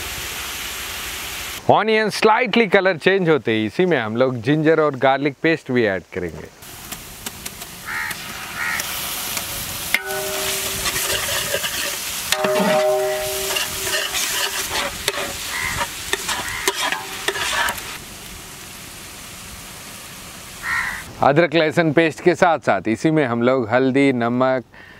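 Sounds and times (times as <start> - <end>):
onions sizzling in oil: 6.6 - 21.1
utensil scraping metal pot: 9.9 - 18.0.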